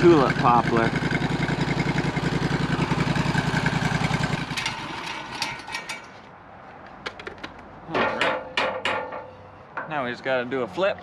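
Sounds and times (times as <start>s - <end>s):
engine idling: 0.0s - 6.1s.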